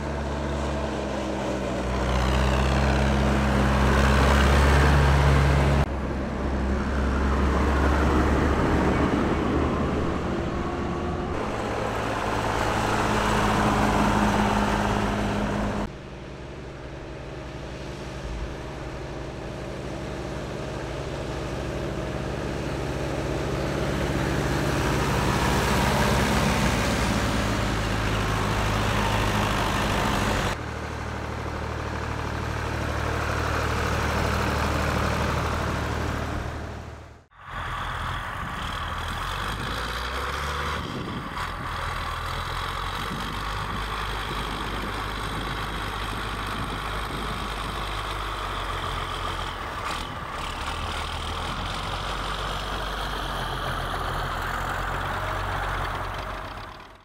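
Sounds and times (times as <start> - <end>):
tractor engines driving past: 0.0 - 57.0.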